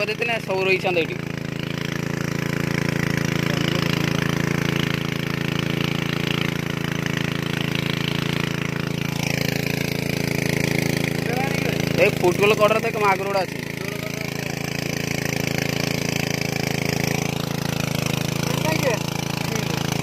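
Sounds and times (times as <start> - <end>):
water pump engine running: 0.0 - 20.0.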